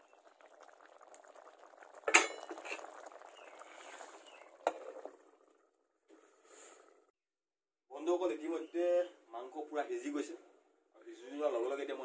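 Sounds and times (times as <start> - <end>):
stew bubbling in a wok: 0.0 - 7.2
metal lid clanking: 2.1 - 2.5.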